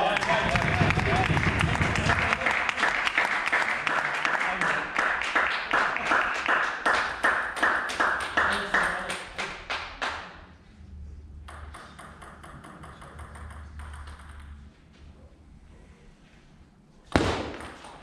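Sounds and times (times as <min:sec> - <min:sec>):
table tennis ball pings: 0:11.4 - 0:14.6.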